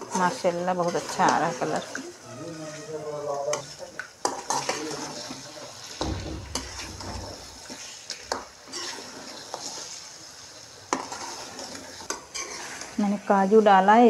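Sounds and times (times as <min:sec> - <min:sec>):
light sizzle: 0:00.0 - 0:14.0
spoon scraping and clinking on metal pan: 0:10.9 - 0:13.0.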